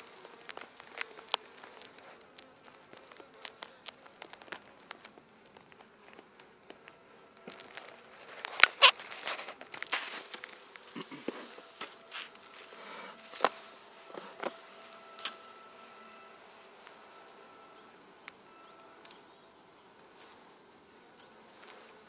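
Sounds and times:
honeybees buzzing: 0.0 - 22.0.

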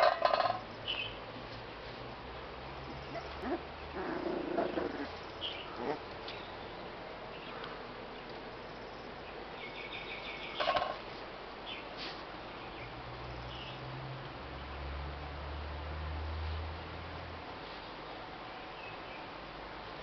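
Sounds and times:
background hiss: 0.0 - 20.0
puppy whimpering: 3.0 - 6.1.

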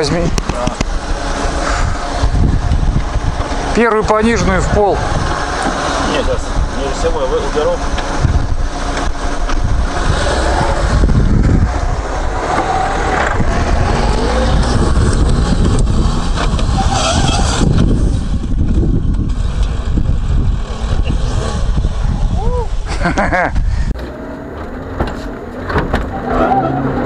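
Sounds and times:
car engine revving hard: 0.6 - 18.4, 19.4 - 22.1.

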